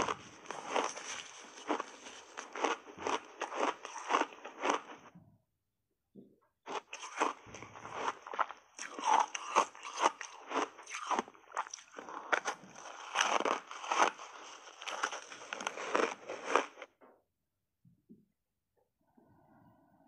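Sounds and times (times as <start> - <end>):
crunching and chewing ice bar: 0.0 - 5.1, 6.7 - 16.9.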